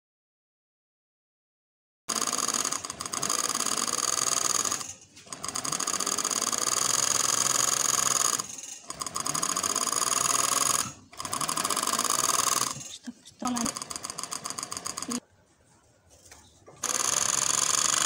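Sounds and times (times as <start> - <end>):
overlock sewing machine running: 2.1 - 15.2, 16.8 - 18.0.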